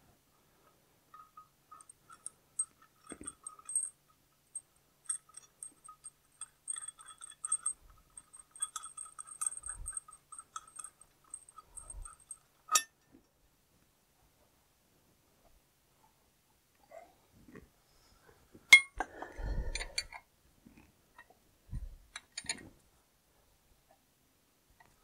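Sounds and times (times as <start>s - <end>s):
metal parts clinking: 1.1s - 4.0s, 5.0s - 12.9s, 22.1s - 22.7s.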